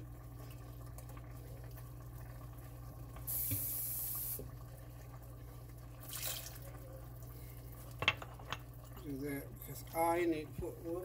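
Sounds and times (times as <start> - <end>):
kitchen tap running: 2.2 - 4.7, 6.0 - 6.8.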